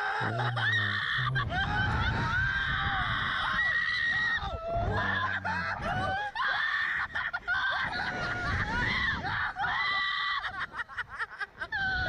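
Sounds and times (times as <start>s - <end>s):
man laughing and shouting: 0.0s - 2.3s.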